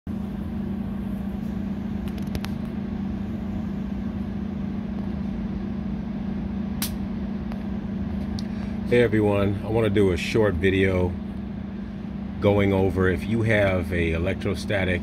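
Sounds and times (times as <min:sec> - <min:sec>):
steady low hum: 0:00.1 - 0:15.0
electrical snaps: 0:02.0 - 0:02.7, 0:06.8 - 0:08.5.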